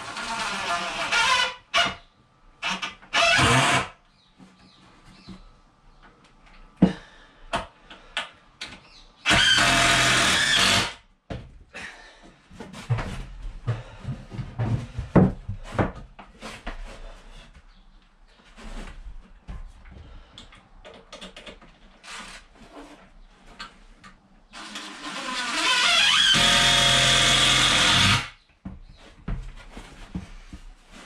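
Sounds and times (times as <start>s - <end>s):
power drill driving screws: 2.6s - 3.9s, 9.3s - 11.0s, 24.6s - 28.4s.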